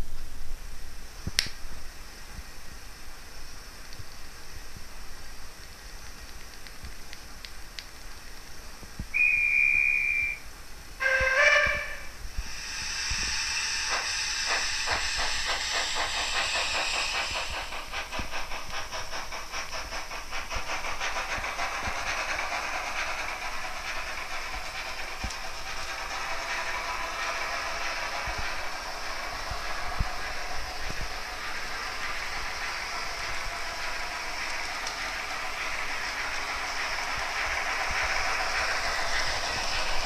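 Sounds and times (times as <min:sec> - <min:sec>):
steam hiss: 0:00.0 - 0:40.0
single-note steam whistle: 0:09.1 - 0:15.7
chord whistle: 0:09.2 - 0:10.4, 0:11.0 - 0:12.1
rhythmic exhaust chuffs: 0:11.0 - 0:40.0.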